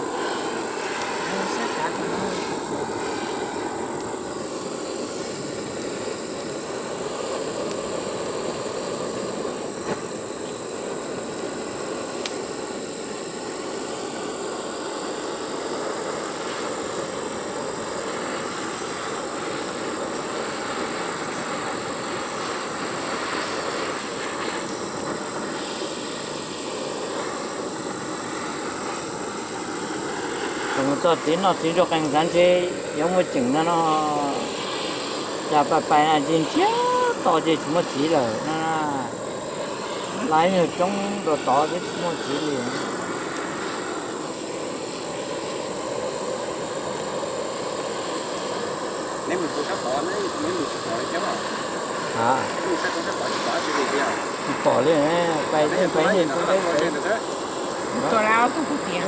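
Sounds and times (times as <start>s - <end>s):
butane torch flame running: 0.0s - 59.0s.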